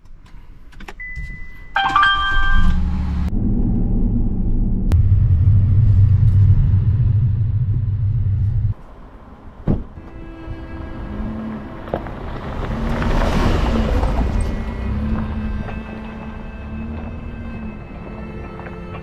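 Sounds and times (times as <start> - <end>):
dashboard chimes: 1.0 - 2.8
short electronic beep: 1.0 - 2.8
truck engine rumble: 1.8 - 19.0.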